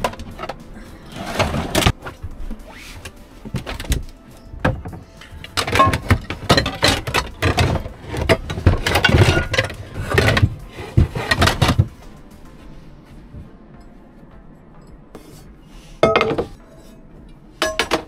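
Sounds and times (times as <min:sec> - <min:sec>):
cooking gear clattering: 0:03.5 - 0:12.0, 0:17.6 - 0:18.0.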